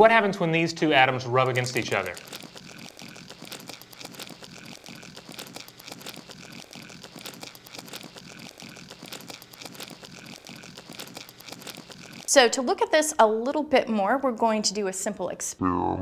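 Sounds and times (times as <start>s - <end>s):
plastic cups scraping together: 1.1s - 12.6s.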